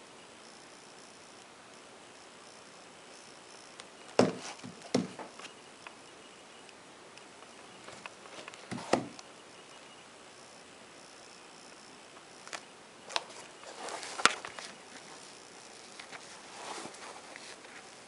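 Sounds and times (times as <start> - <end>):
faint steady hiss: 0.0 - 18.0
taps and rustles: 4.1 - 5.6, 7.8 - 9.2
sneakers rustling and knocking: 4.2 - 5.4.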